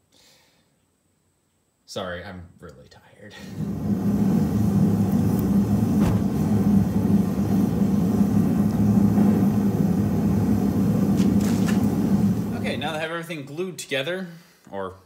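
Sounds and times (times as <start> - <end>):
steady low roar: 3.4 - 13.0.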